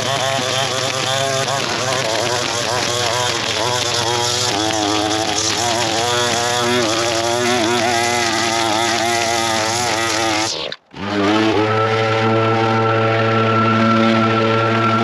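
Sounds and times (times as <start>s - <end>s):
string trimmer engine running: 0.0s - 15.0s
steady engine at even pitch: 11.0s - 15.0s.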